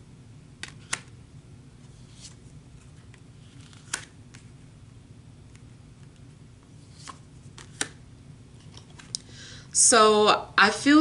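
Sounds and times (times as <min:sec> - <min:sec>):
faint low steady hum: 0:00.0 - 0:11.0
cards clicking and tapping: 0:00.6 - 0:01.1, 0:03.1 - 0:04.5, 0:07.0 - 0:08.0.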